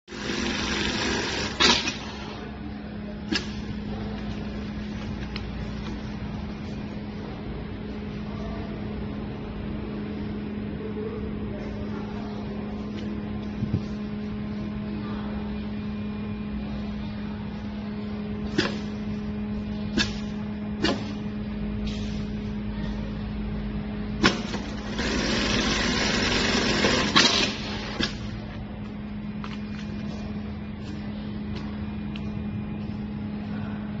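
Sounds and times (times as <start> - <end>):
sewing machine hum: 0.0 - 2.5, 24.2 - 28.4
sewing machine stitching rapidly: 0.1 - 2.2, 24.2 - 28.1.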